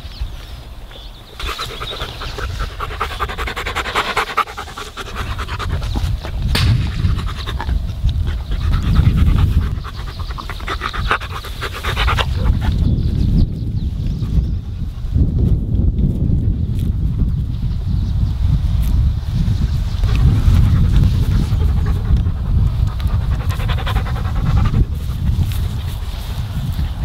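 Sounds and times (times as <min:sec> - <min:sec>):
dog panting rapidly: 0:01.4 - 0:13.0, 0:20.1 - 0:25.9
low microphone rumble: 0:01.5 - 0:27.0.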